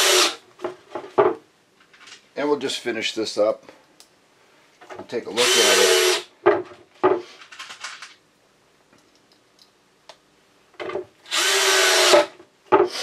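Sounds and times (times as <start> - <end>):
cordless drill driving screws: 0.0 - 0.4, 5.4 - 6.3, 11.3 - 12.3.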